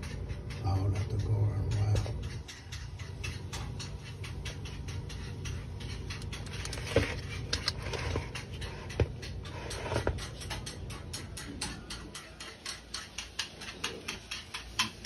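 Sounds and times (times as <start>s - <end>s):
low steady hum: 0.0s - 14.9s
handling clicks and crackles: 4.9s - 15.0s.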